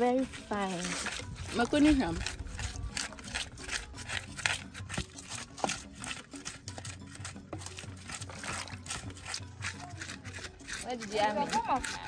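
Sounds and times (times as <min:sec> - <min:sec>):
pestle grinding in bowl: 0:00.0 - 0:12.0.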